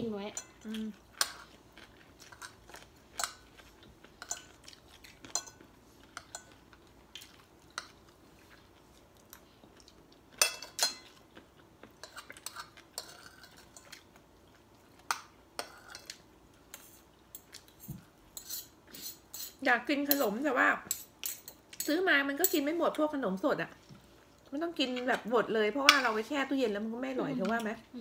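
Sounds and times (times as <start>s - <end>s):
cutlery clinking on plates: 5.3s - 6.6s, 10.4s - 11.2s.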